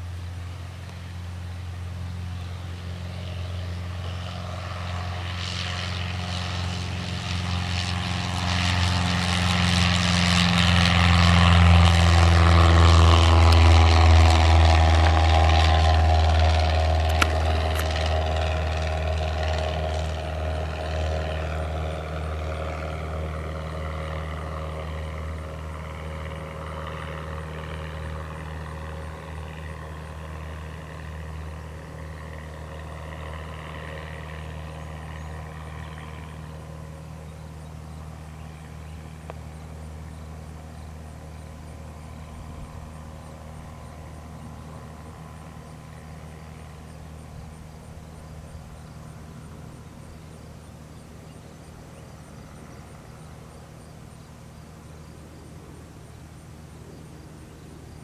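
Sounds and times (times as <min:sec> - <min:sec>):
small plane engine droning: 0:00.0 - 0:58.0
sharp click: 0:17.1 - 0:17.9.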